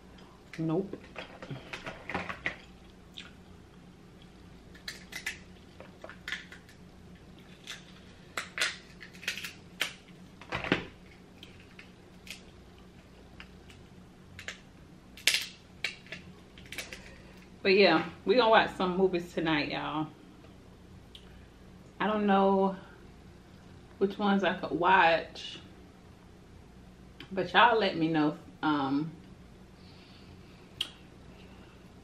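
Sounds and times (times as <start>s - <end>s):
crab shell cracking: 4.7s - 10.1s.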